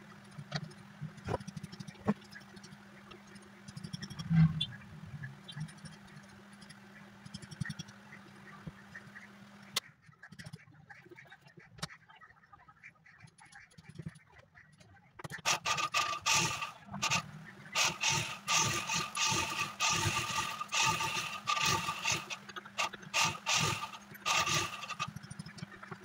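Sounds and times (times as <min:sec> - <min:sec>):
sewing machine motor hum: 0:15.4 - 0:26.0
sewing needle clatter: 0:17.8 - 0:26.0.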